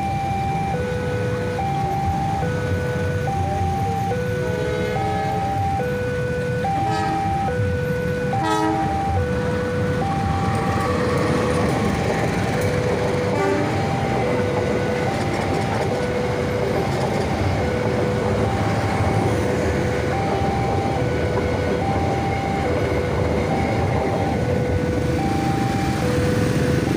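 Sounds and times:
level crossing warning signal: 0.0s - 26.9s
train wheels rumbling on rail: 0.9s - 26.9s
train horn: 4.4s - 5.4s, 6.7s - 7.4s, 8.3s - 9.0s, 13.3s - 14.0s.

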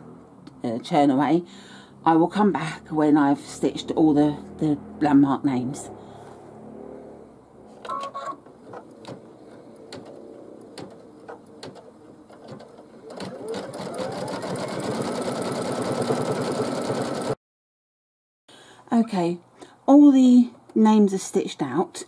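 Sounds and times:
embroidery machine stitching rattle: 10.8s - 17.4s.

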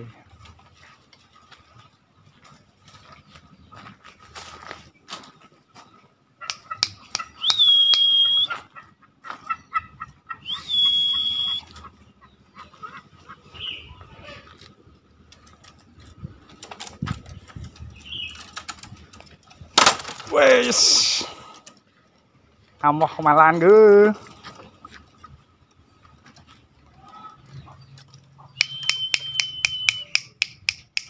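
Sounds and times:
quick ticking clucks: 6.4s - 14.5s, 27.5s - 31.0s
junglefowl shrill calls: 6.4s - 14.6s.

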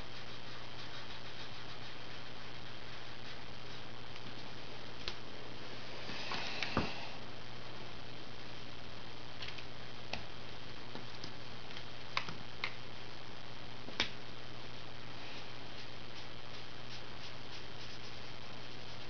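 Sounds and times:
felt tip scratching paper: 0.0s - 3.9s.

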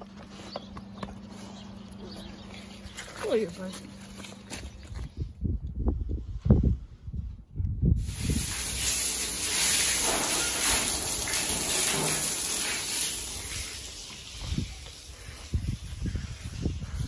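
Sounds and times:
hose spraying water on concrete: 8.0s - 17.0s.

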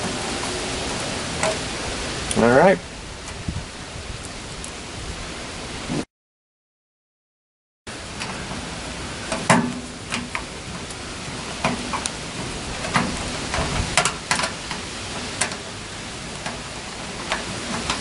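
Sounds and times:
steady hiss: 7.9s - 18.0s.

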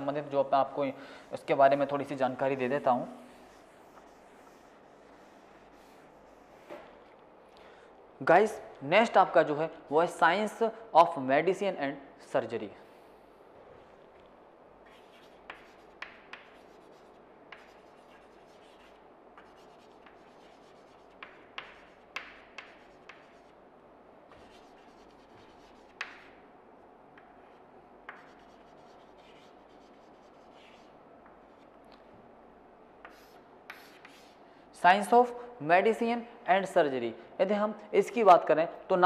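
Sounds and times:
chalk scratching on chalkboard: 1.3s - 6.9s, 14.8s - 23.6s, 24.3s - 26.4s, 27.2s - 31.7s, 33.0s - 34.4s
chalk tapping on board: 3.4s - 6.9s, 14.9s - 23.5s, 24.3s - 26.4s, 27.2s - 31.4s, 33.0s - 34.4s.

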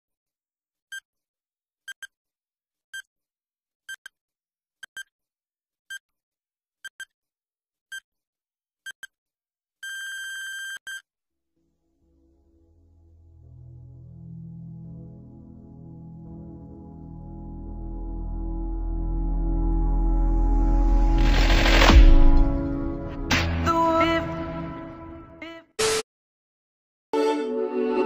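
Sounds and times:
ambient synth music: 11.8s - 25.4s.

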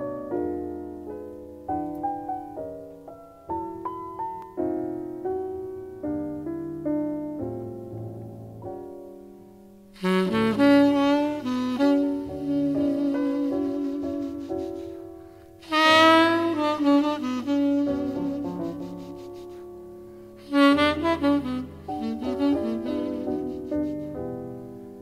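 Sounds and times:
piano chords: 0.0s - 25.0s
breathy tenor saxophone melody: 10.0s - 24.8s.

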